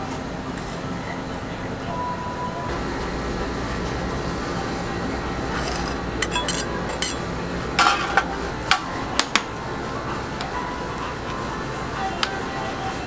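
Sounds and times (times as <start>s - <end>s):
steady low hum: 0.0s - 13.0s
metal spatula scraping ice cream: 5.5s - 7.2s
utensils clinking on steel: 5.5s - 8.4s.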